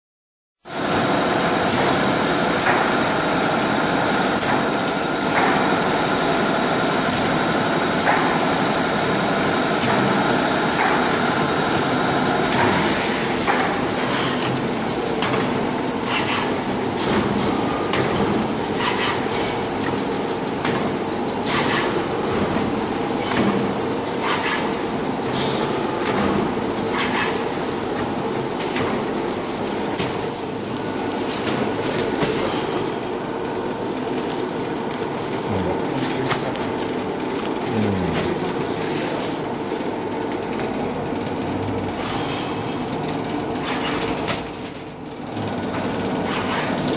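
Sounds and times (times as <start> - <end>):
wrapping machine running: 0.7 - 46.9.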